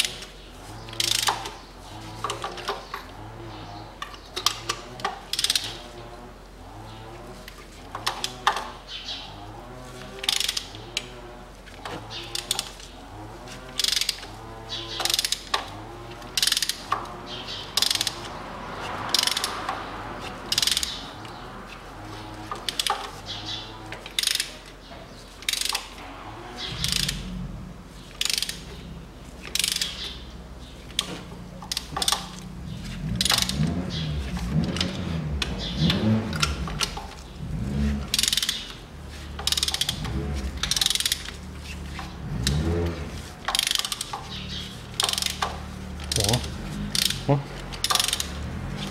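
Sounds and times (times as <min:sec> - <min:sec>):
ratchet wrench clicking: 0:00.9 - 0:01.6, 0:04.0 - 0:05.8, 0:10.2 - 0:11.2, 0:12.0 - 0:12.9, 0:13.7 - 0:18.3, 0:19.1 - 0:19.8, 0:20.4 - 0:21.4, 0:22.4 - 0:24.7, 0:25.4 - 0:26.0, 0:26.6 - 0:27.4, 0:28.0 - 0:48.9.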